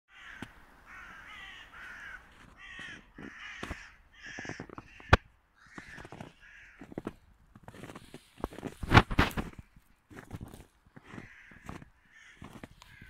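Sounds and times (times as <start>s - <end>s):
crows cawing: 0.1s - 7.3s, 11.0s - 13.0s.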